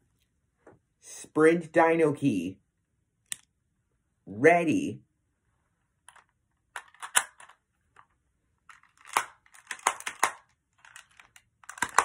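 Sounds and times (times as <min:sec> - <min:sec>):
plastic toy clicking: 0:06.8 - 0:07.6, 0:08.7 - 0:12.0.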